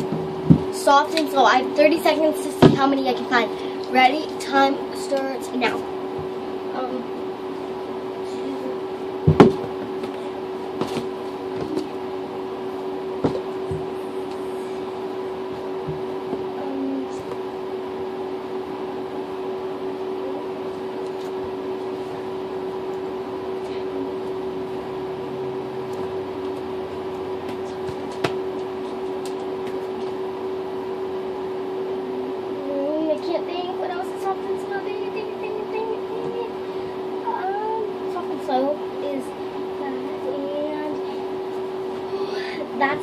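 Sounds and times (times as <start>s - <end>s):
steady hum: 0.0s - 43.0s
knocks and bumps: 9.2s - 10.2s.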